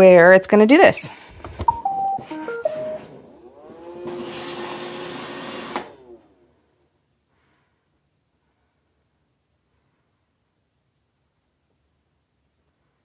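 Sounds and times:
short tune of electronic beeps: 1.7s - 3.1s
robot vacuum motors whirring: 3.0s - 6.5s.

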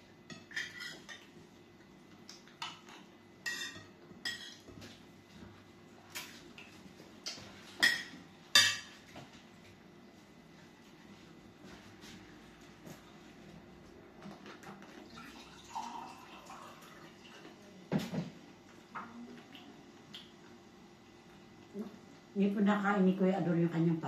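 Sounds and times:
cutlery clinking on glass plates: 0.3s - 1.3s, 2.6s - 4.8s, 7.8s - 9.0s.

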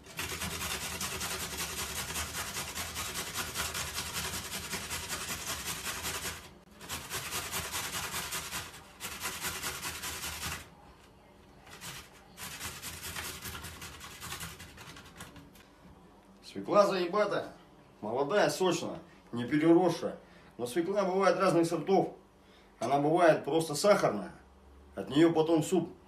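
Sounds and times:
beetroot grating on metal grater: 0.0s - 10.7s, 11.7s - 15.4s.

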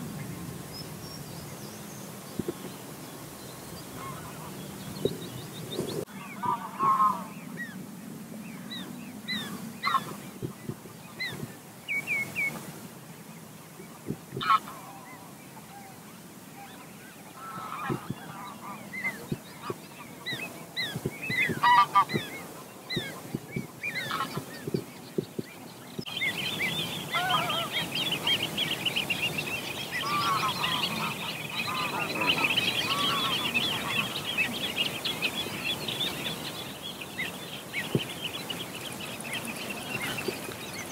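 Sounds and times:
geese honking: 3.9s - 4.8s, 6.0s - 7.8s, 9.3s - 10.2s, 14.4s - 16.0s, 16.6s - 24.7s, 26.5s - 40.5s
rapid high bird calls: 16.7s - 40.9s.

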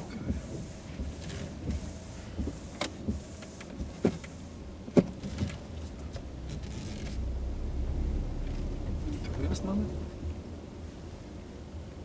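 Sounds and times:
car engine idling: 5.6s - 11.7s.

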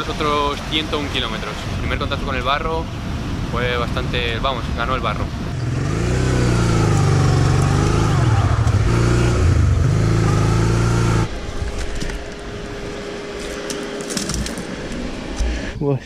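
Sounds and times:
motorcycle engine revving: 5.3s - 11.7s.

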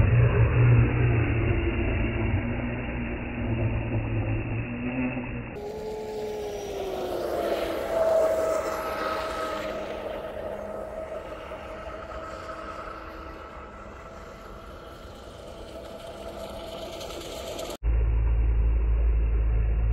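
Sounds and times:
electric motor whining: 3.2s - 17.2s.

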